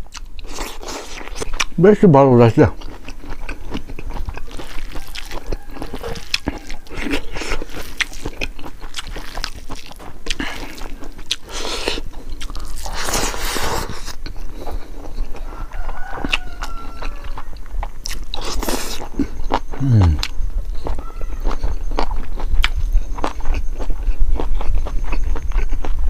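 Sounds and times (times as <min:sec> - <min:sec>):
wet chewing and mouth smacks: 0:00.0 - 0:01.8, 0:02.7 - 0:26.0
fingers squishing rice: 0:02.8 - 0:15.5.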